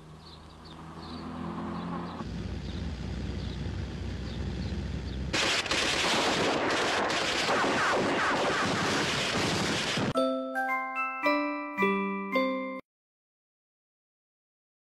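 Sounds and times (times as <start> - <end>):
rapid gunfire: 5.3 - 10.1
mallet percussion music: 10.2 - 12.8.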